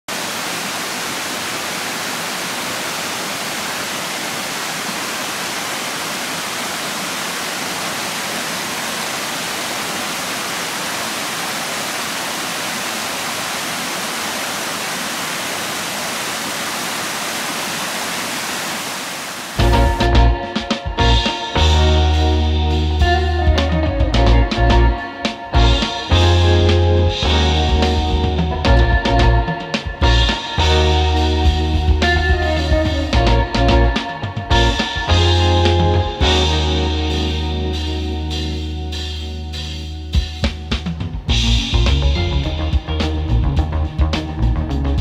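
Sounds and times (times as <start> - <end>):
stream rushing over rocks: 0.1 - 19.6
guitar music: 19.6 - 44.8.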